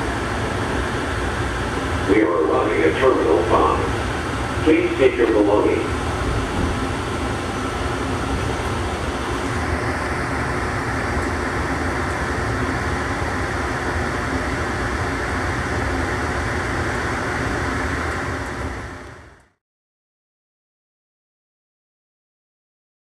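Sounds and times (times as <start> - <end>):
train cabin rumble and hiss: 0.0 - 19.6.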